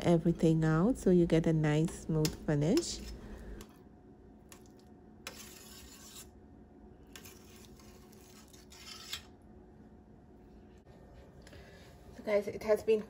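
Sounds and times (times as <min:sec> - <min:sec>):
metal spoon scraping pan: 0:05.2 - 0:06.3, 0:07.1 - 0:09.3.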